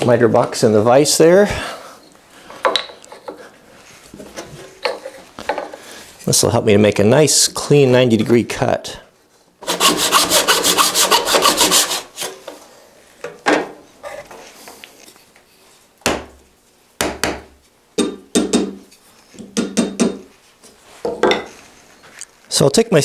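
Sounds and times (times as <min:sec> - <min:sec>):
hand saw cutting wood: 0:09.6 - 0:12.4.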